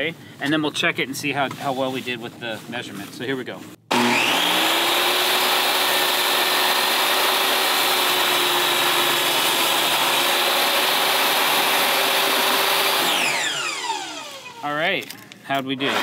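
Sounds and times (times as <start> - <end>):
table saw whining: 3.9 - 14.6.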